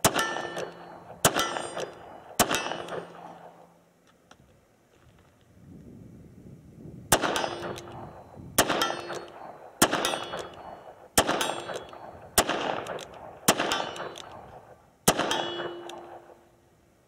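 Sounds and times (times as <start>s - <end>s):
steel target clanging: 0.0s - 3.3s, 7.3s - 7.9s, 8.7s - 10.7s, 11.3s - 12.0s, 15.2s - 16.2s
revolver gunshots: 0.0s - 3.6s, 7.1s - 16.4s.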